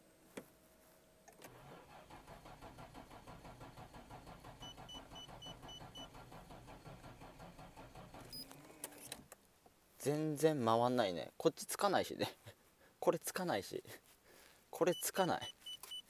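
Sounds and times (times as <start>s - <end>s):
starter motor cranking engine: 1.4s - 9.0s
short electronic beeps: 14.9s - 16.0s.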